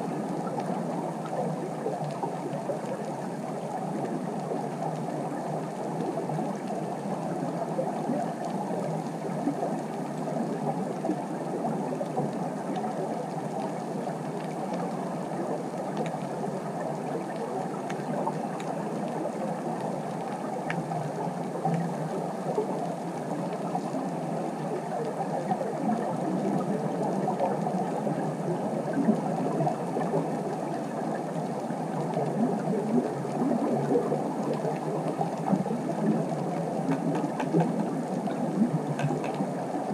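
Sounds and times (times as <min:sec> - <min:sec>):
muffled underwater crackling hiss: 0:00.0 - 0:39.9.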